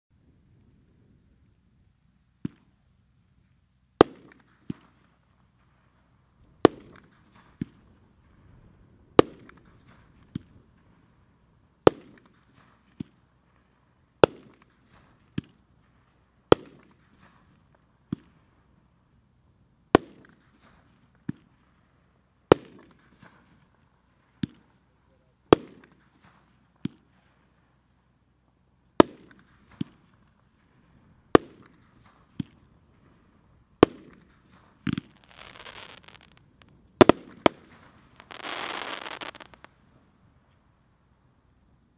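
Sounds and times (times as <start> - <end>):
firework shots bursting: 6.6 - 7.8, 31.3 - 32.7, 33.8 - 39.7
dense firework crackling: 29.0 - 40.0.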